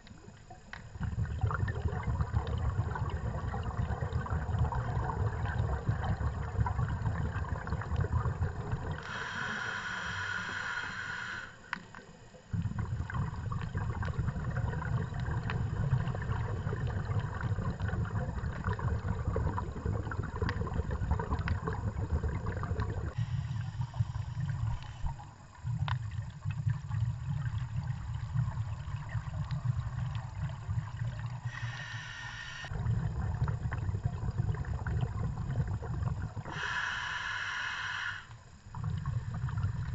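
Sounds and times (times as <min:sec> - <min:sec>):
bubbling exhaled air: 0:00.8 - 0:11.6, 0:12.5 - 0:39.9
scuba regulator inhalation hiss: 0:09.0 - 0:11.7, 0:23.2 - 0:25.2, 0:31.4 - 0:32.7, 0:36.5 - 0:38.5
faint scattered clicks: 0:11.7 - 0:12.1.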